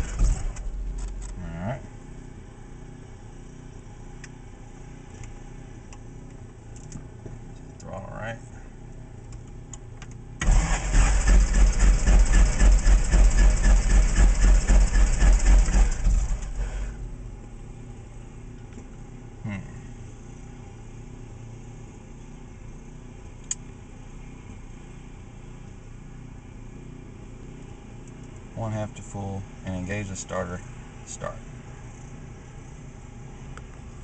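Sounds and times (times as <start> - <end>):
aircraft engine cranking: 0.0 - 1.4, 10.4 - 16.9.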